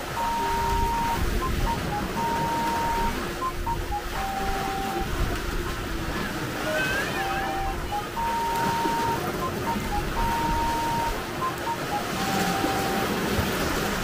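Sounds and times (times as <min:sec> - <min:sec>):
beeping tone melody: 0:00.0 - 0:13.4.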